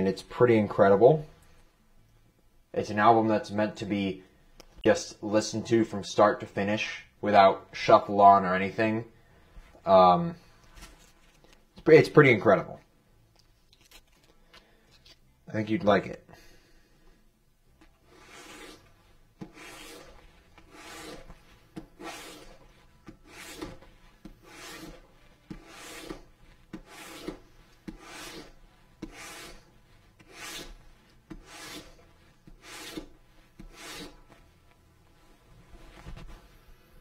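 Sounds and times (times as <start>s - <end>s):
rubbing leather edge: 18.0s - 34.4s.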